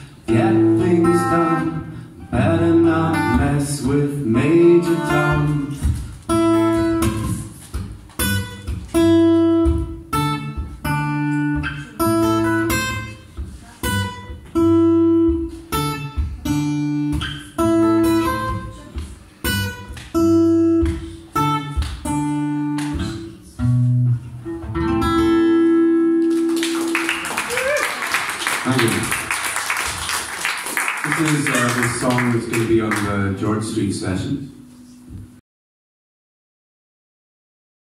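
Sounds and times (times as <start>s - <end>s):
solo guitar: 0.0s - 27.2s.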